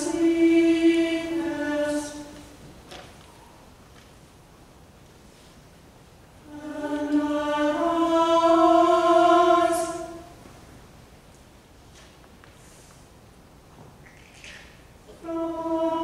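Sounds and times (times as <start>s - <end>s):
choir singing one note: 0.0s - 2.4s, 6.4s - 10.4s, 15.2s - 16.0s
hissed consonant: 0.0s - 2.6s, 6.0s - 11.1s, 15.0s - 16.0s
church room sound: 0.0s - 16.0s.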